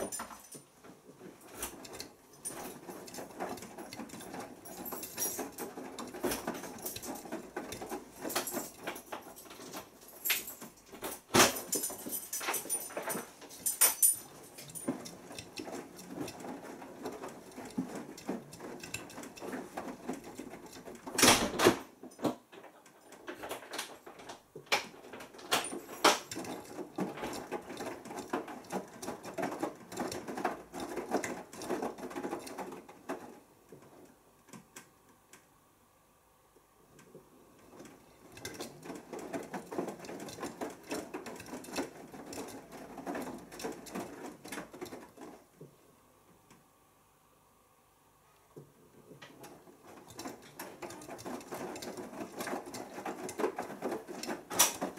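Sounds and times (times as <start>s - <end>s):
washing machine drum tumbling clothes: 0.0s - 35.0s, 36.8s - 45.8s, 48.6s - 54.9s.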